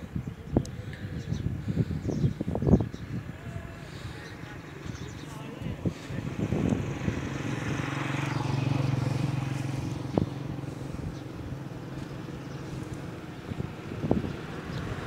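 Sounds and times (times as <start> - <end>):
vehicle engine humming passing: 3.4 - 15.0.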